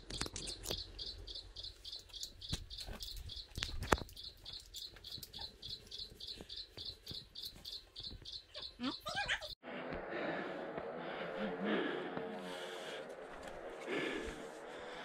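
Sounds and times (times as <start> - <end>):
insect chirping: 0.7 - 9.0.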